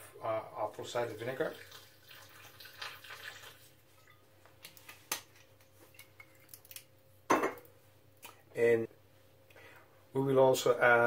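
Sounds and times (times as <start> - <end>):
liquid trickling into a jar: 1.2 - 4.3, 5.9 - 6.8.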